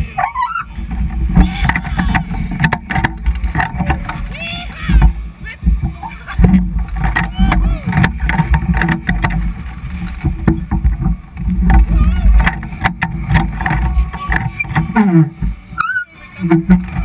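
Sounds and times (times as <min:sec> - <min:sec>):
riders shouting: 0:00.0 - 0:02.5, 0:07.2 - 0:08.2
wind buffeting microphone: 0:00.0 - 0:17.0.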